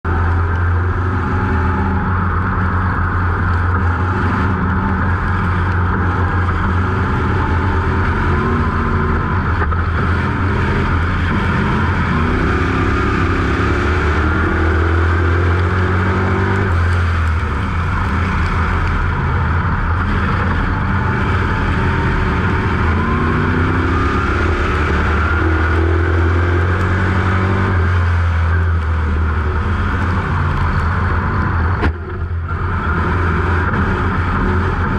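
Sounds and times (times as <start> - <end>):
race car engine accelerating: 0.0 - 34.9.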